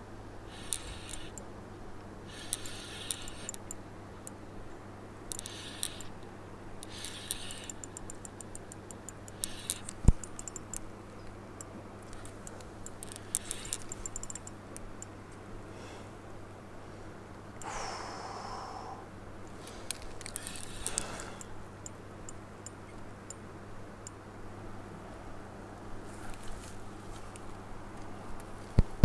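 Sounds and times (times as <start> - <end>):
fishing reel ticking: 0.5 - 1.4, 2.3 - 3.8, 5.3 - 6.1, 6.8 - 10.8, 12.8 - 14.5
sharp reel click: 0.5 - 1.5, 2.3 - 3.8, 5.3 - 6.1, 6.8 - 10.8, 12.2 - 14.6.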